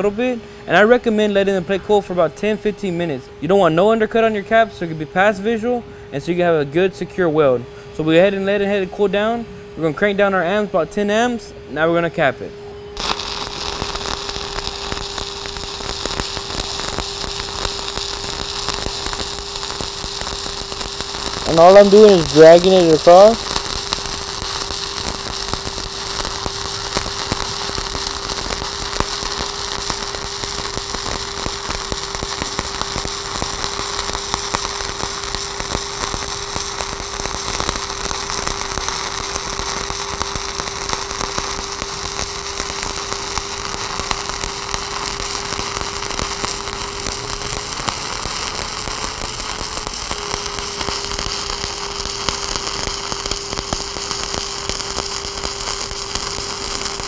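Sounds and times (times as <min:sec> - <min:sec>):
steady hum: 0:00.0 - 0:57.0
welding arc crackling: 0:13.0 - 0:57.0.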